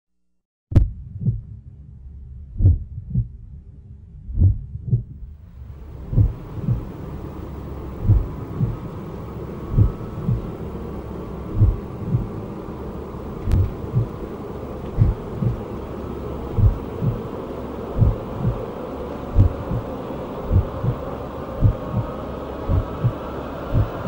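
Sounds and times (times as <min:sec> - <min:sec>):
heartbeat thumps: 0:00.7 - 0:01.6, 0:02.5 - 0:03.4, 0:04.3 - 0:05.3, 0:06.0 - 0:07.0, 0:08.0 - 0:08.9, 0:09.7 - 0:10.5, 0:11.5 - 0:12.4, 0:13.4 - 0:14.2, 0:14.9 - 0:15.7, 0:16.5 - 0:17.3, 0:18.0 - 0:18.7, 0:19.3 - 0:19.9, 0:20.5 - 0:24.0
soft hiss: 0:05.3 - 0:24.0.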